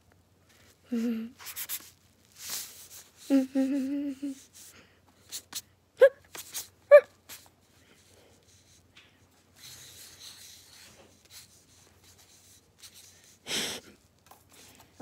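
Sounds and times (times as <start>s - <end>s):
marker scratching on paper: 1.4s - 3.2s, 6.3s - 6.7s, 9.6s - 13.4s.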